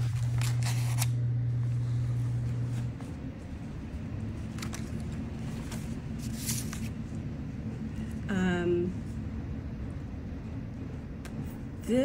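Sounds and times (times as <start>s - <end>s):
paper pages rustling: 0.0s - 1.1s, 4.4s - 7.2s
low steady hum: 0.0s - 12.0s.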